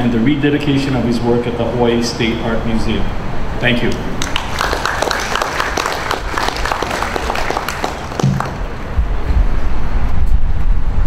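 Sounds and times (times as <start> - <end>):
audience applauding: 4.2 - 9.0
low rumble: 8.2 - 11.0.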